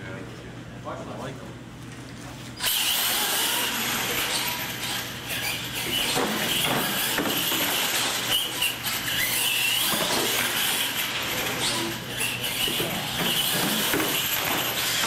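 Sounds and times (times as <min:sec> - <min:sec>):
electric motors whining: 0:02.6 - 0:15.0.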